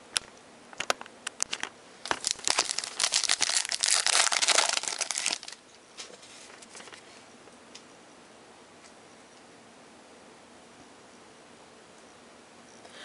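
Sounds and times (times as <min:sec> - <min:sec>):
foil wrapper tearing and crinkling: 0:01.5 - 0:05.6.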